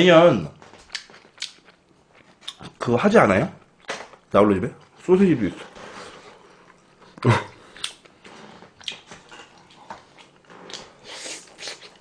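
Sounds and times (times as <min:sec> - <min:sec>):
chewing with mouth clicks: 0:00.8 - 0:02.7, 0:08.8 - 0:12.0.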